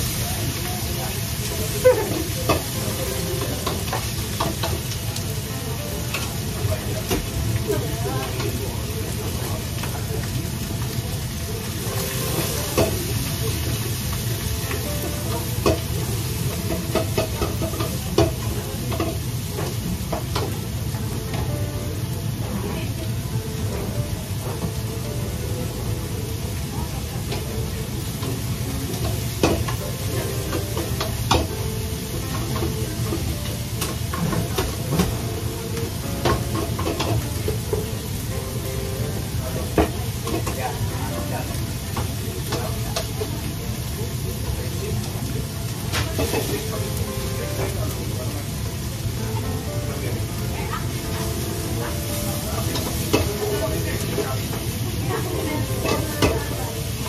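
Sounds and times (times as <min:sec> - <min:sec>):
food sizzling in a wok: 0:00.0 - 0:57.0
metal utensil clacking on pan: 0:36.2 - 0:37.2.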